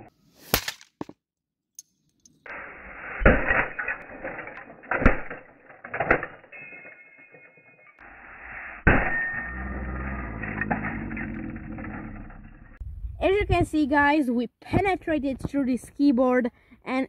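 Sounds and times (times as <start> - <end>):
low rumble: 8.1 - 13.7.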